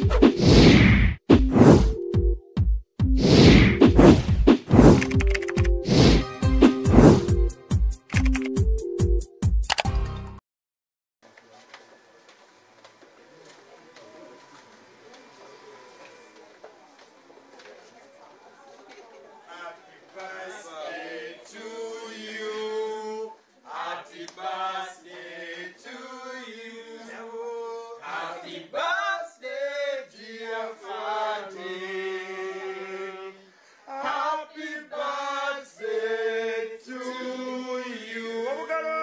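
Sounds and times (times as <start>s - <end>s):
group singing unaccompanied: 20.1s - 38.7s.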